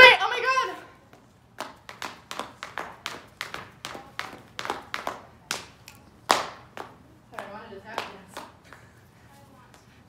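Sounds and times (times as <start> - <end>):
hand claps: 1.6 - 8.9.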